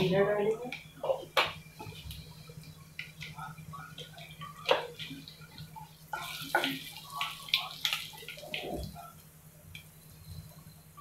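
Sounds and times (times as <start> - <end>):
wooden spoon stirring in pan: 0.0 - 10.7
seeds sizzling in hot oil: 1.6 - 9.0.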